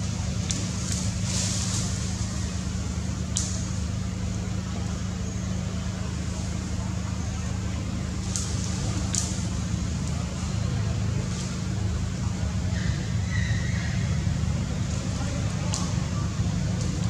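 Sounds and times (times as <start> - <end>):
low mechanical hum: 0.0 - 17.0
short hissy rustles: 0.5 - 2.4.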